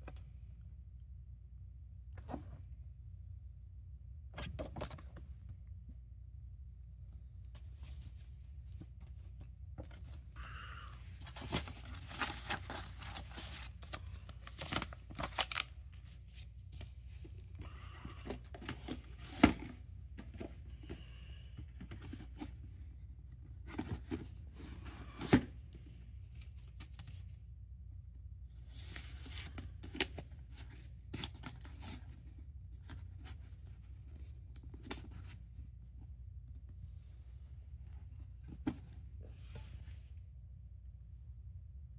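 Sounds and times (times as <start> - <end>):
cardboard rustling and scraping: 7.4 - 10.4, 11.2 - 17.0.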